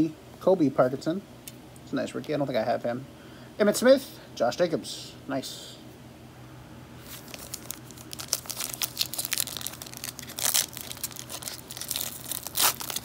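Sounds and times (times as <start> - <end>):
plastic wrapper crinkling: 7.0 - 13.0
plastic wrapper ripping: 7.0 - 13.0.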